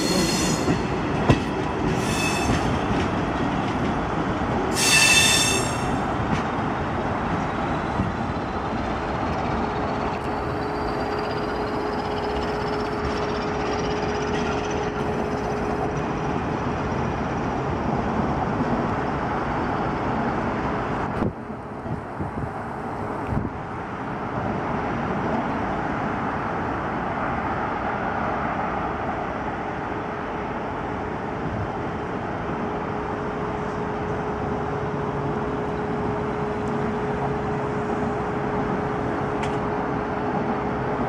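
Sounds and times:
high wheel squeal: 0:00.0 - 0:00.8, 0:01.9 - 0:02.7, 0:04.7 - 0:06.0
train rumbling on track: 0:00.0 - 0:41.0.

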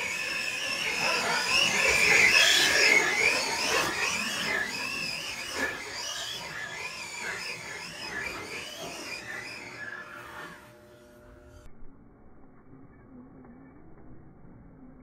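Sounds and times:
tyres churning dirt: 0:00.0 - 0:10.4
electric motor whine: 0:00.0 - 0:11.9.

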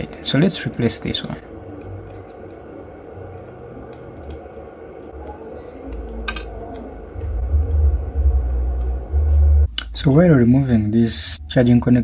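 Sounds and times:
low rumble: 0:06.6 - 0:12.0.

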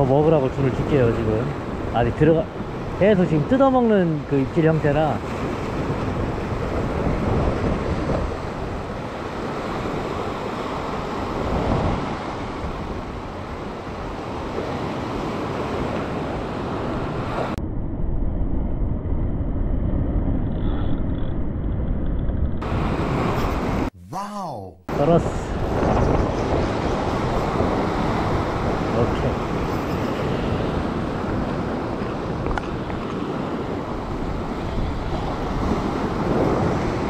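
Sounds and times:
wind buffeting microphone: 0:04.2 - 0:23.9, 0:24.9 - 0:37.0.

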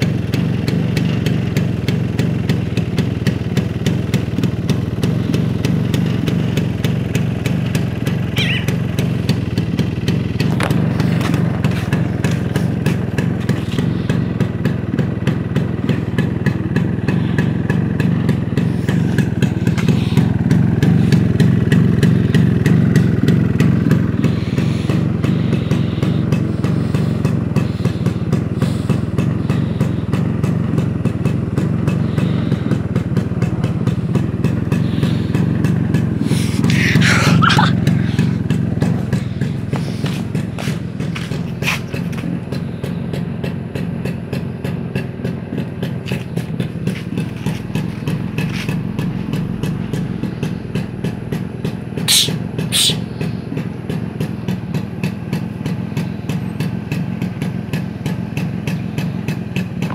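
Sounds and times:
motorcycle engine idling: 0:00.0 - 0:59.9.

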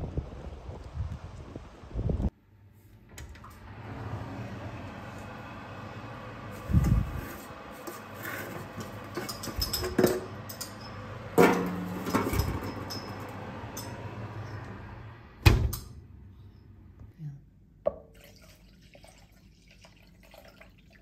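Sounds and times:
pot clanking on metal tray: 0:07.9 - 0:14.0
oven door shutting: 0:11.4 - 0:16.0.

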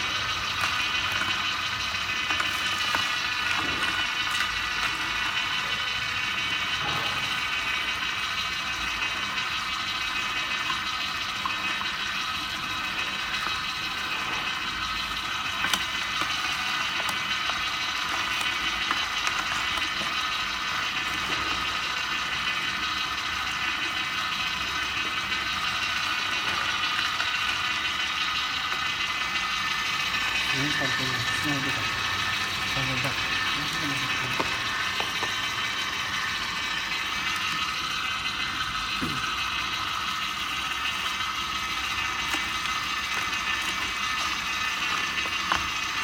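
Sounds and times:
juicer motor whining: 0:00.0 - 0:46.0.

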